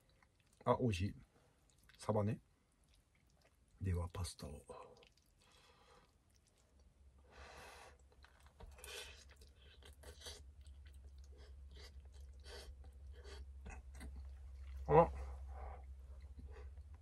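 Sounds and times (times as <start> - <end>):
person chewing food: 0.0 - 0.7, 1.5 - 2.0, 2.7 - 3.8, 4.8 - 7.3, 7.9 - 17.0.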